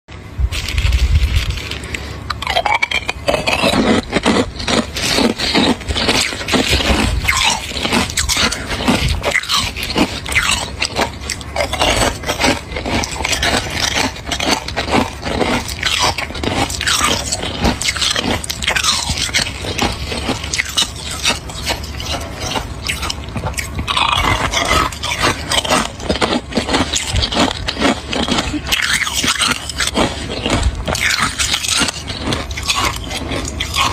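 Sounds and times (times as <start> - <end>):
ice being chewed: 0.1 - 33.9.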